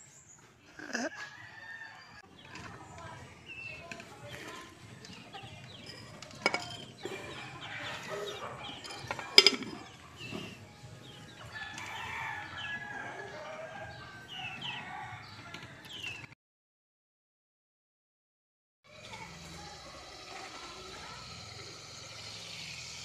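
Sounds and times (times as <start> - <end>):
chicken clucking and chirping: 0.1 - 16.3.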